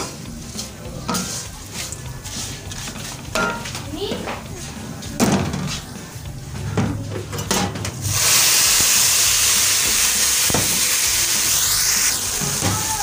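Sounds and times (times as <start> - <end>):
milk sizzling in hot fat: 8.0 - 13.0.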